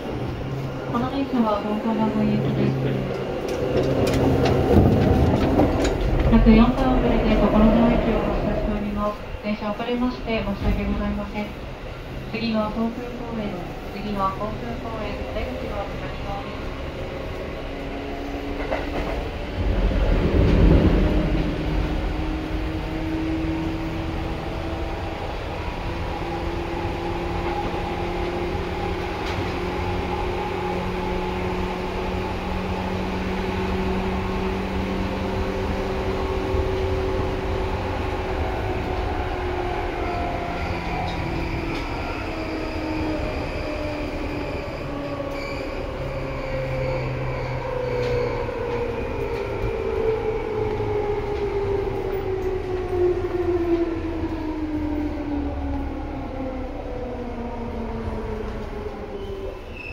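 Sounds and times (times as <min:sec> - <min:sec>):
loud low rumble: 0:00.0 - 0:12.4, 0:19.2 - 0:24.9
electric train running drone: 0:00.0 - 0:59.9.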